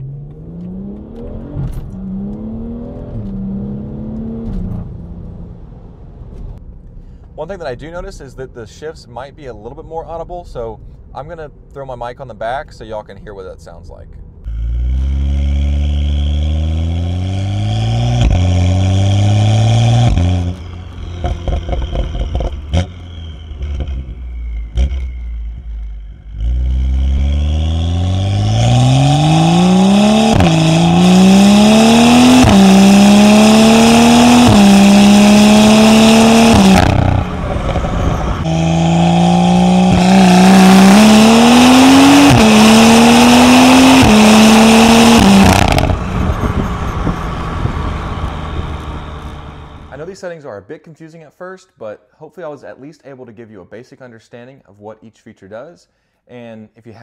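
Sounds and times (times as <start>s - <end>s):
car engine accelerating hard: 0.0s - 5.7s, 14.5s - 50.0s
exhaust cracks: 14.4s - 50.2s
gear shifts: 18.2s - 33.4s.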